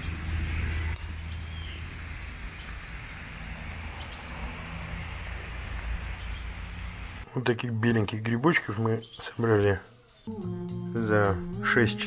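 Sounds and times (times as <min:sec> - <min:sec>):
rain hissing on leaves: 0:00.0 - 0:07.2.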